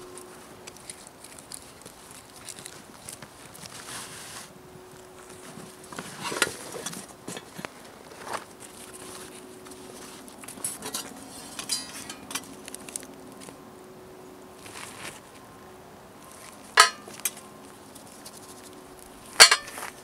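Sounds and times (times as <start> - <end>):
metal pot and lid clinking: 11.6 - 12.4, 16.8 - 17.1, 19.4 - 19.8.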